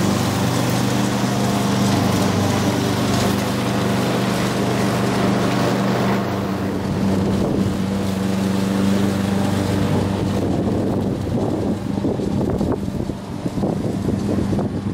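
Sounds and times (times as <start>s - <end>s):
lawn mower engine running: 0.0s - 14.9s
wind noise on microphone: 6.7s - 8.6s, 9.6s - 14.9s.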